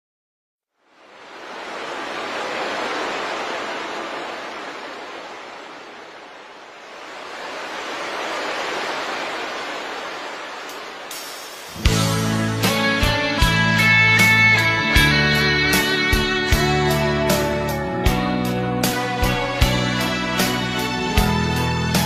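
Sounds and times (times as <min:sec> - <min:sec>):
ocean waves washing in: 0:00.7 - 0:14.6.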